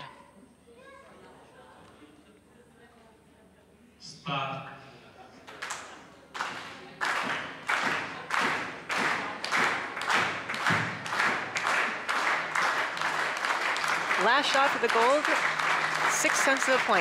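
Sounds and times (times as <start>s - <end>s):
spectators clapping in unison: 5.5s - 17.0s.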